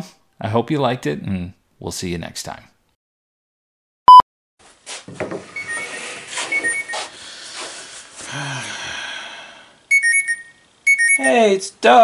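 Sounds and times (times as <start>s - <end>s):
man's voice humming: 8.3s - 9.4s
loud test-tone bleep: 9.9s - 11.4s
phone alert high notes: 9.9s - 11.5s.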